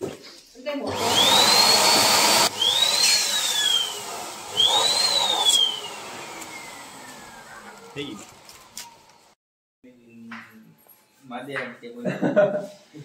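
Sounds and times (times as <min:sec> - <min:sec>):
electric pump motor whine: 0:00.9 - 0:09.4.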